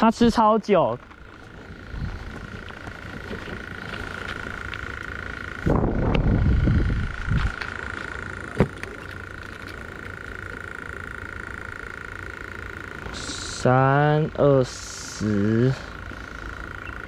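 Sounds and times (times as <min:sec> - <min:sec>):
high-pitched drone: 0:00.0 - 0:17.0
wind buffeting microphone: 0:01.6 - 0:03.6, 0:05.6 - 0:07.6.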